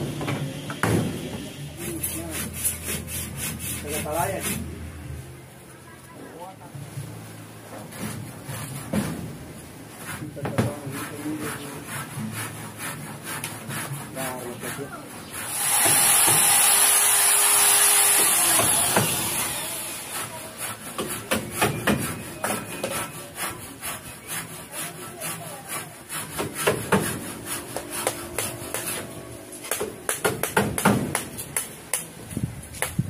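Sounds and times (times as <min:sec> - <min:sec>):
loud rasping hiss: 0:15.4 - 0:21.0.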